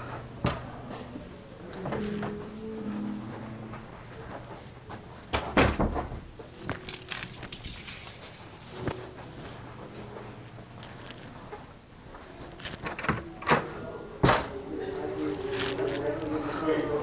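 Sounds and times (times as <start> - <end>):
handling knocks and clatter: 5.8 - 11.7.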